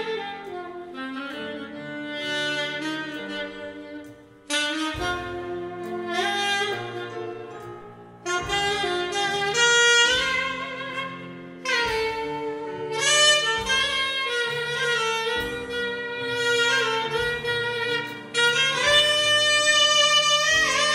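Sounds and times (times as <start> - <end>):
big band jazz: 0.0 - 20.9
saxophone: 0.0 - 20.9.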